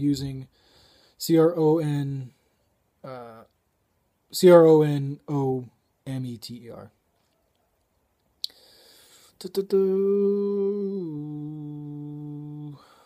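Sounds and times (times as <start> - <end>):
short breath: 0.5 - 1.2, 8.4 - 9.4, 12.8 - 13.0
mouth clicks: 8.2 - 8.6
man humming: 9.4 - 13.0.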